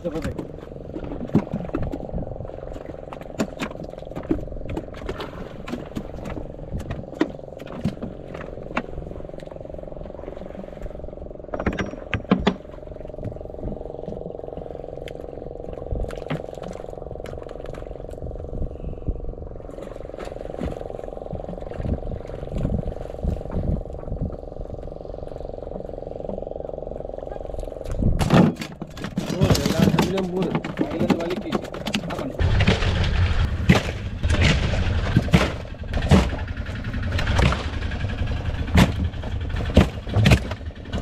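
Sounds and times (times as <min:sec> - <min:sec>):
knocks and thumps on wooden boat: 0:00.0 - 0:09.4, 0:11.4 - 0:14.7, 0:27.8 - 0:41.0
steady low hum: 0:00.0 - 0:41.0.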